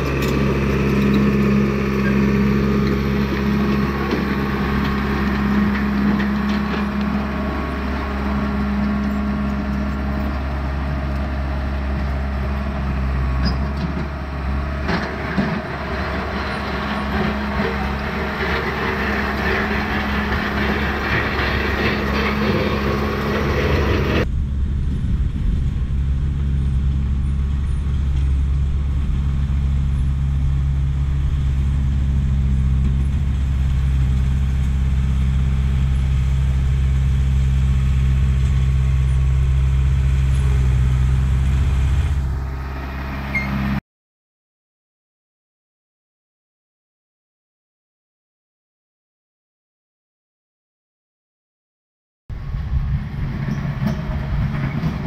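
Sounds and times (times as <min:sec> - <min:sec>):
tracks rattling and scraping on shale: 0:00.0 - 0:10.4, 0:13.4 - 0:24.2, 0:53.3 - 0:55.0
bulldozer diesel engine running: 0:00.0 - 0:43.8, 0:52.3 - 0:55.0.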